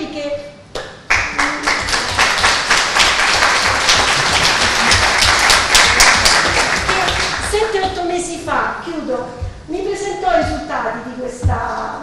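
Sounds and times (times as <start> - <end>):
audience applauding: 1.1 - 7.8.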